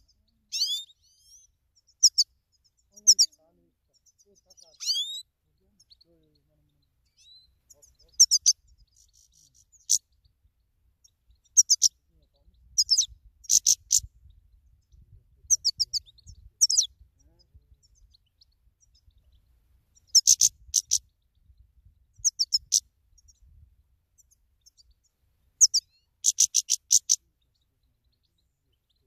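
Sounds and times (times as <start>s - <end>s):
bird chirping and twittering: 0.0s - 29.0s
low wind rumble: 12.1s - 19.7s, 20.5s - 24.0s.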